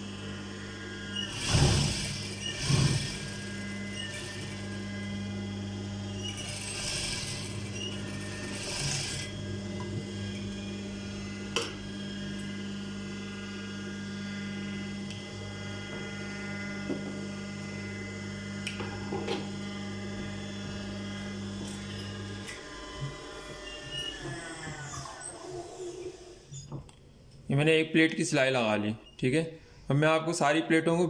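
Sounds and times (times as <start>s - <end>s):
sewing machine motor humming: 0.0s - 26.7s
sewing machine stitching: 1.2s - 5.4s, 6.0s - 10.4s.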